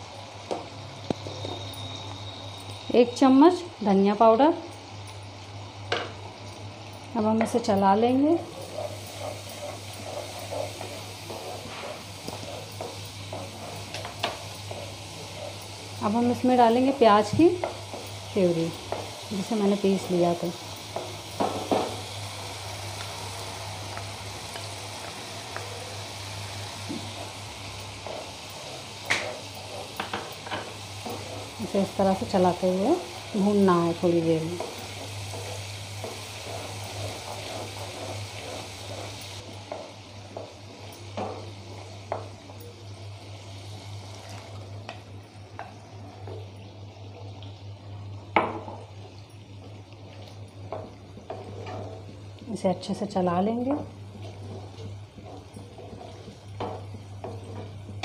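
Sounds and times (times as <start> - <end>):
masala sizzling in pan: 0.0 - 58.0
spatula scraping pan: 8.1 - 42.3, 50.6 - 52.2, 53.7 - 58.0.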